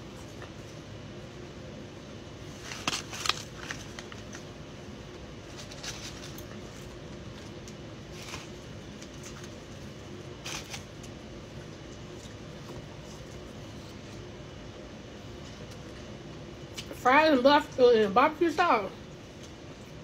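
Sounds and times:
steady hum: 0:00.0 - 0:20.0
person chewing fries: 0:02.4 - 0:14.4, 0:15.2 - 0:16.9.

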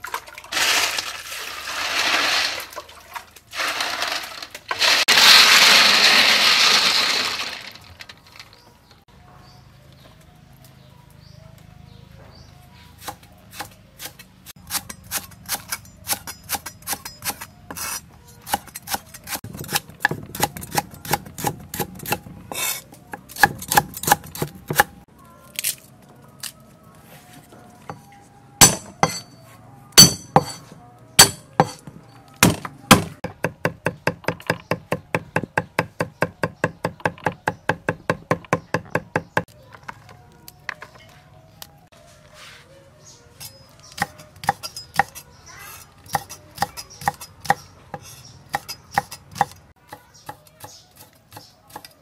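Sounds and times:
cleaver chopping on wooden block: 0:28.6 - 0:29.3, 0:30.0 - 0:30.6, 0:31.2 - 0:39.5.

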